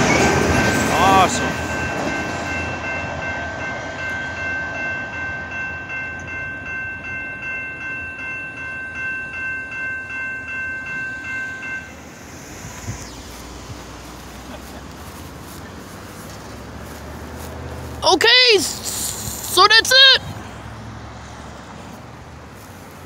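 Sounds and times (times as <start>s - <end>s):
railroad crossing bell ringing: 0.0s - 17.0s
freight train rumble: 0.0s - 23.0s.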